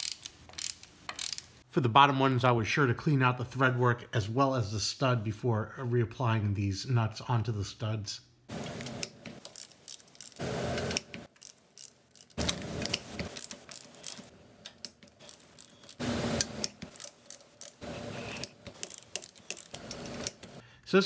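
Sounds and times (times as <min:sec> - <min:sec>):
ratchet wrench clicking: 0:00.0 - 0:01.5, 0:09.0 - 0:16.0, 0:16.6 - 0:20.5.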